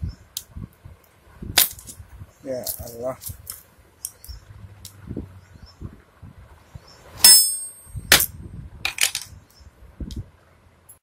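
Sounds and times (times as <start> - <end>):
loud ringing metal clang: 7.2 - 8.3
small metal clicks and scraping: 8.8 - 9.4.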